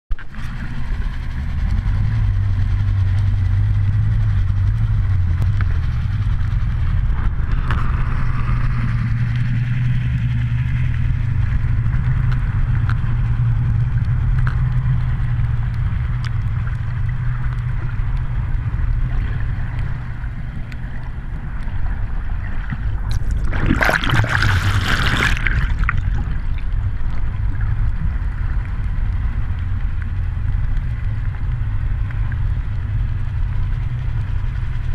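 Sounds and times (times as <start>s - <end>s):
motorboat engine drone underwater: 0.1s - 34.9s
water rushing past: 16.5s - 27.8s
loud splashing: 23.1s - 26.4s.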